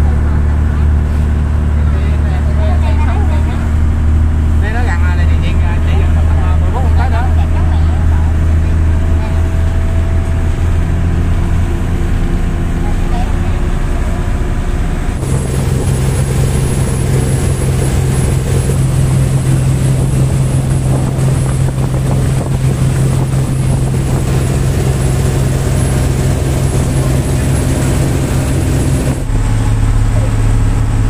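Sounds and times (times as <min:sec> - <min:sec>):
churning wake water: 0:00.0 - 0:31.0
speedboat engine drone: 0:00.0 - 0:31.0
wind rushing: 0:15.2 - 0:29.6.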